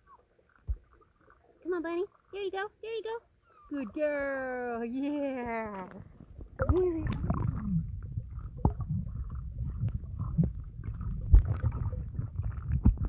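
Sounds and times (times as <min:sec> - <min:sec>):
muffled underwater water churn: 0:00.0 - 0:03.4, 0:05.8 - 0:13.0
dull underwater knocks: 0:00.6 - 0:01.1, 0:05.5 - 0:13.0.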